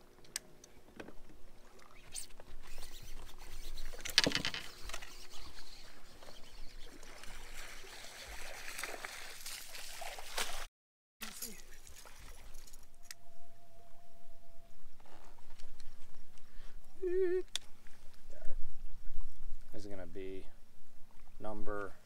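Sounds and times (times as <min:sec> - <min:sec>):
water splashing: 0:05.0 - 0:12.8.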